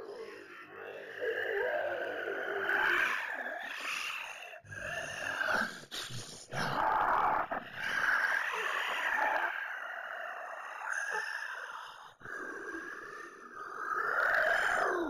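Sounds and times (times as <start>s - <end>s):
animal-like creature noises: 0.0s - 15.0s.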